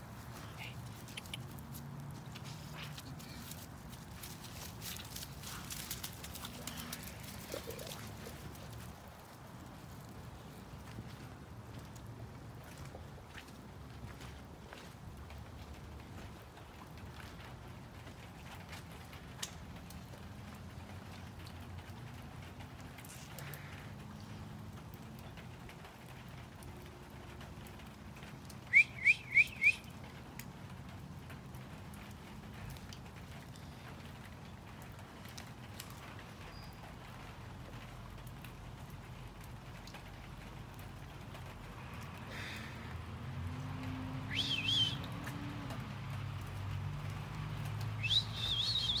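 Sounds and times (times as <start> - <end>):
faint rain patter: 0.0 - 49.0
rising whistled notes: 44.3 - 45.0, 48.0 - 49.0.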